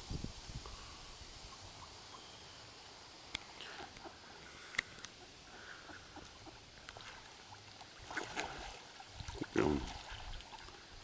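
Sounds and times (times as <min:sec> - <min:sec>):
ducks calling: 0:03.6 - 0:07.2.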